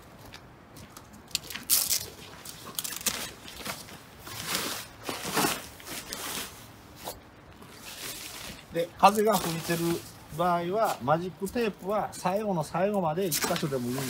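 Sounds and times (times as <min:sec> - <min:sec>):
velcro tabs ripping: 0:01.4 - 0:03.4
nylon sheet rustling: 0:01.7 - 0:11.0, 0:13.3 - 0:14.0.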